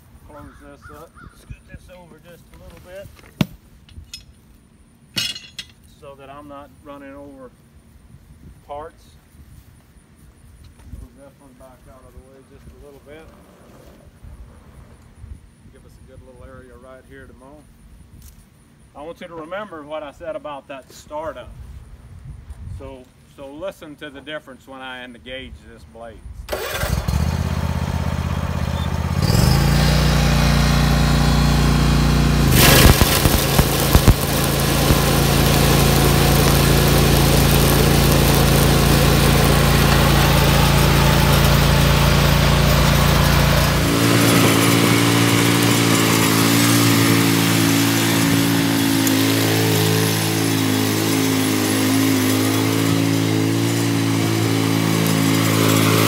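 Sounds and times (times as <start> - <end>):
mower engine running: 26.5 - 56.0
mowing deck clatter: 32.5 - 56.0.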